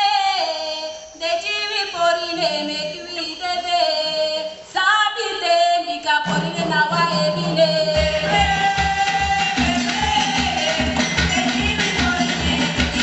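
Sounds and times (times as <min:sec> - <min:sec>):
drum beating steadily: 0:06.2 - 0:13.0.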